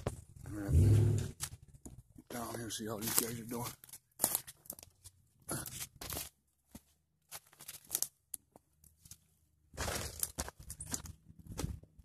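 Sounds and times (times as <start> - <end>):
footsteps on dry leaves and stones: 2.3 - 11.9.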